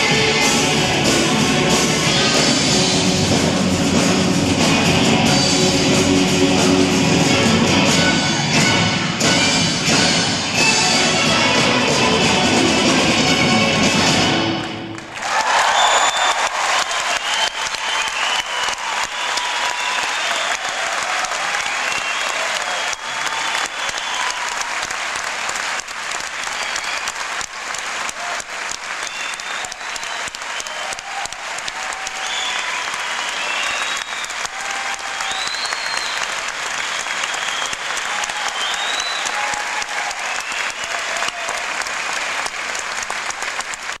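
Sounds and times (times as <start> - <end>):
audience applauding: 0.0 - 44.0
cheers and whoops: 15.1 - 24.9, 26.3 - 27.4, 28.0 - 42.0.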